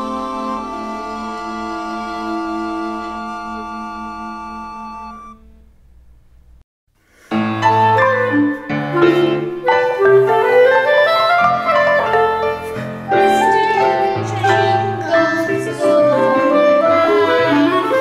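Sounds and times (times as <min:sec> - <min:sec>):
woodwind melody: 0:00.0 - 0:05.6, 0:07.5 - 0:18.0
piano: 0:00.0 - 0:05.8, 0:07.0 - 0:18.0.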